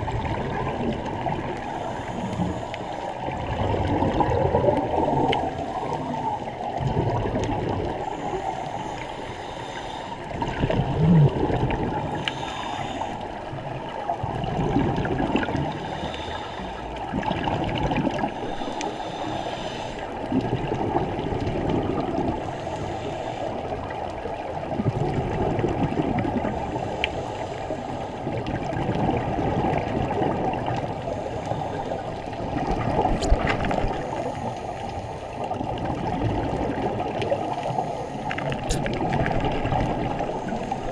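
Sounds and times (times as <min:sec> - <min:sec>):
exhaust bubbles gurgling: 0:00.0 - 0:09.1, 0:10.2 - 0:12.7, 0:13.3 - 0:19.4, 0:20.0 - 0:22.6, 0:23.5 - 0:26.8, 0:27.7 - 0:40.9
scuba regulator breathing underwater: 0:00.7 - 0:06.6, 0:07.8 - 0:13.8, 0:14.8 - 0:20.4, 0:21.9 - 0:24.0, 0:26.3 - 0:28.4, 0:30.2 - 0:35.8, 0:36.5 - 0:40.9.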